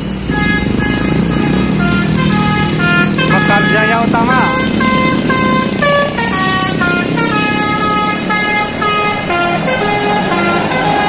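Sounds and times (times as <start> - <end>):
bus engine humming: 0.0 - 11.0
multi-tone air horn tune: 0.2 - 11.0.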